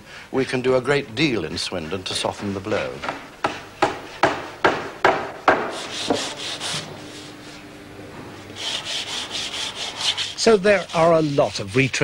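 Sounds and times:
hand sanding wood: 1.6 - 7.6, 8.5 - 12.0.

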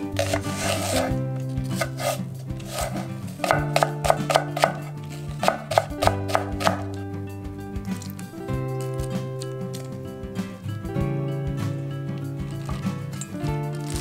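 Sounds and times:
background music: 0.0 - 14.0
knife tapping on cutting board: 3.4 - 4.8.

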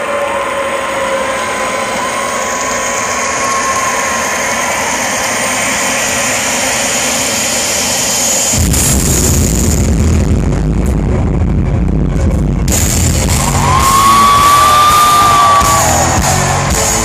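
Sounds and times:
crowd roaring and whistling: 0.0 - 6.9, 13.2 - 17.0.

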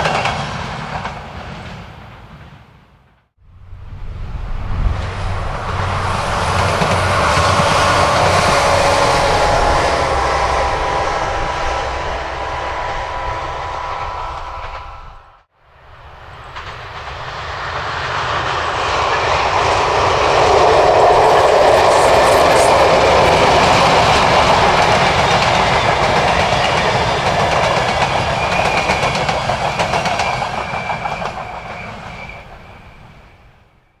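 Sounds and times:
diesel train passing: 0.0 - 34.0
faint high whine: 3.5 - 16.2.

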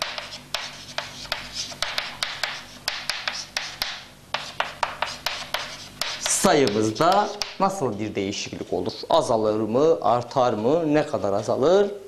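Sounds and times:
chalk tapping on board: 0.0 - 7.8
chalk scratching on blackboard: 0.0 - 9.0.

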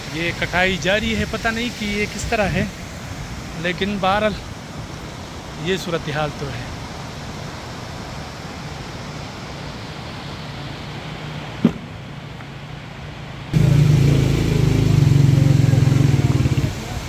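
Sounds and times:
mountain stream rushing: 0.0 - 17.0
steady low hum: 13.6 - 16.8.

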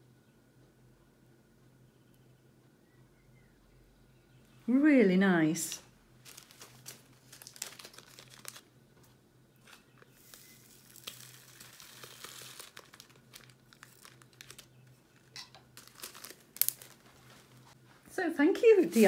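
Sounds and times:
beads pattering into bag: 6.2 - 8.7, 9.6 - 17.6
plastic bags crinkling: 6.2 - 8.7, 9.7 - 17.8.

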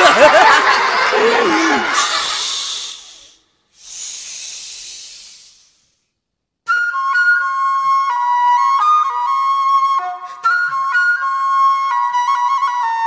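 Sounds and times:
breathy hisses: 1.2 - 6.2
flute melody with held notes: 6.7 - 13.0.

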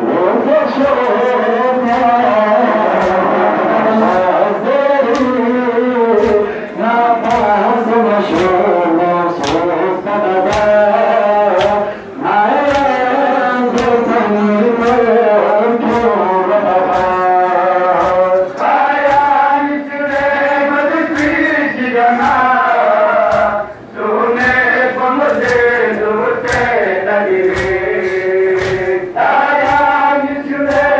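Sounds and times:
men chanting a lament: 0.0 - 30.9
chest-beating slaps: 1.9 - 4.4, 5.0 - 5.4, 6.2 - 6.5, 7.2 - 7.6, 8.3 - 8.7, 9.4 - 9.7, 10.5 - 10.8, 11.5 - 11.8, 12.6 - 13.0, 13.7 - 14.0, 16.8 - 23.7, 25.3 - 30.9.

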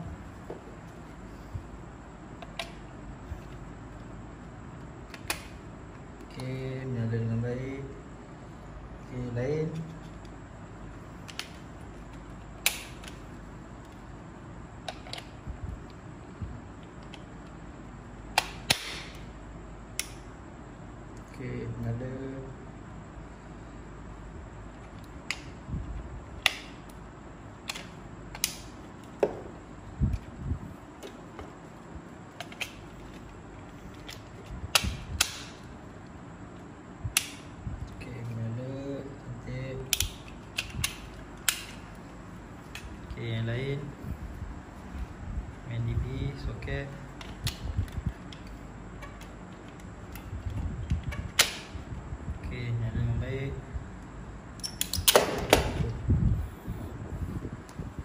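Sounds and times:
plastic socket tester clicks: 39.9 - 41.8.

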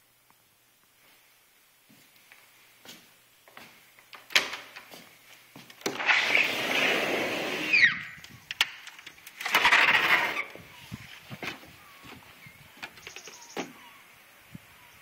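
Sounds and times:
sliding glass door rolling: 5.8 - 7.9, 9.4 - 10.6
sliding screen door rolling: 5.8 - 8.0, 9.2 - 10.6.

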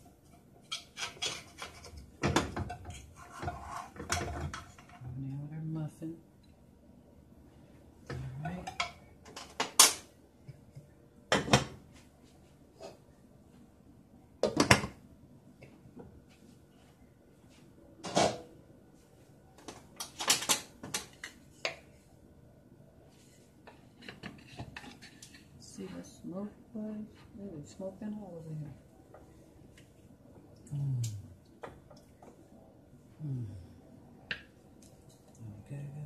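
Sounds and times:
cookware clinking and knocking: 0.6 - 5.0, 8.4 - 10.1, 11.3 - 11.8, 18.0 - 18.4.

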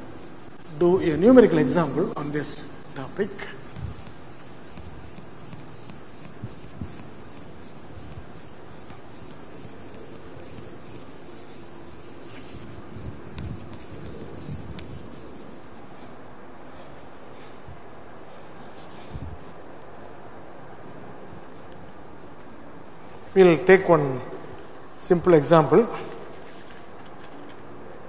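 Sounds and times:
duster rubbing chalkboard: 0.0 - 16.1.

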